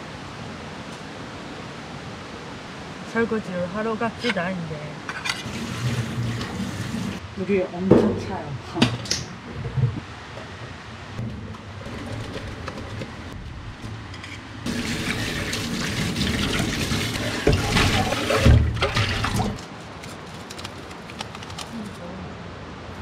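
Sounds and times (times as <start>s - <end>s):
faucet water gushing onto pot: 5.4s - 7.2s, 14.7s - 19.6s
dishes clattering: 14.2s - 19.6s.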